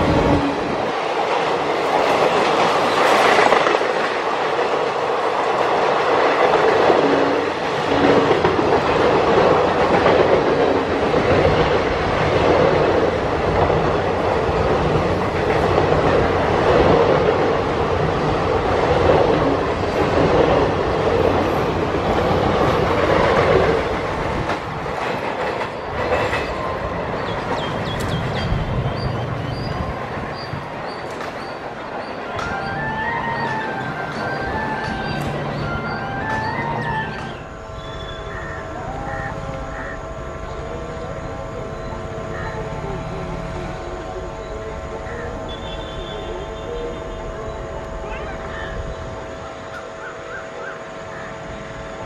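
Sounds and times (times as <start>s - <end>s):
train wheels clattering over rail joints: 19.0s - 29.6s.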